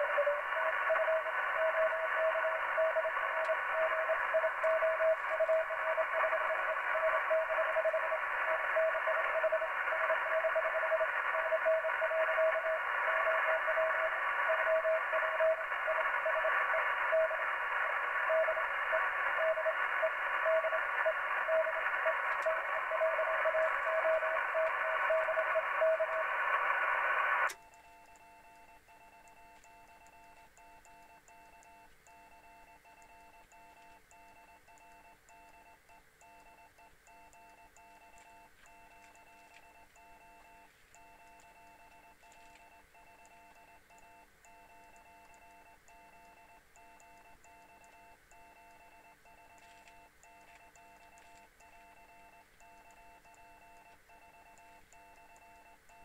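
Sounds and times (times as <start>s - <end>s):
morse code tone: 0.0s - 27.5s
radio static: 0.0s - 27.6s
faint steady whine: 0.0s - 56.0s.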